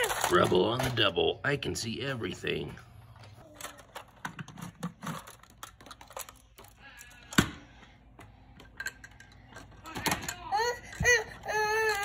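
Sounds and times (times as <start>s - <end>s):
plastic toy parts clicking: 3.4s - 7.5s.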